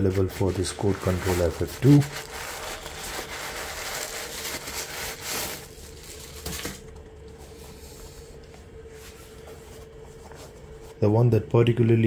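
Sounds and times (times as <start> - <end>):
tissue paper rustling: 0.0 - 6.8.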